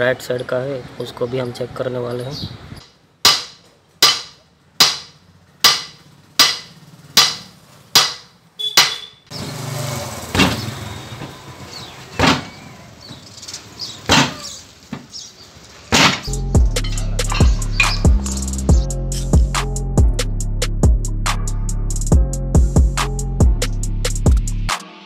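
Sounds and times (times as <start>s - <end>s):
hammer clanging on metal drum: 3.3s - 8.2s.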